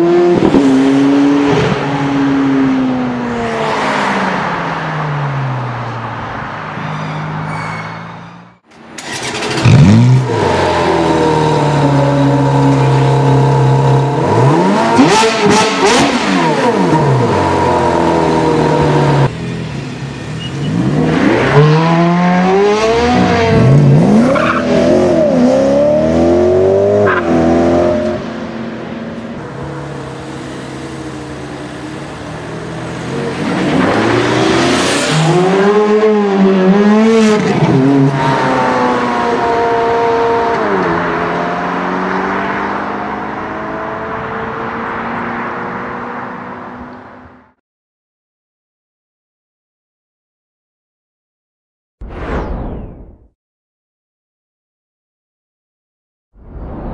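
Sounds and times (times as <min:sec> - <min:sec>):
car engine revving and accelerating: 0:09.0 - 0:19.3, 0:20.6 - 0:28.3, 0:29.9 - 0:47.2.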